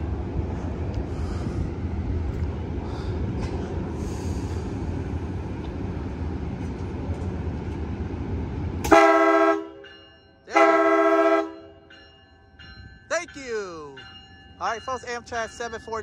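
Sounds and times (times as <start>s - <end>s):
train rumbling slowly: 0.0s - 16.0s
train horn blasts: 8.8s - 9.9s, 10.5s - 11.8s.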